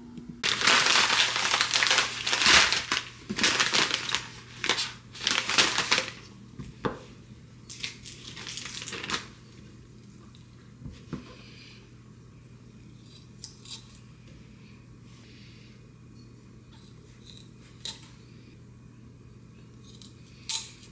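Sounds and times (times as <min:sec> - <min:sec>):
plastic packaging crinkling: 0:00.4 - 0:06.3, 0:07.7 - 0:09.4.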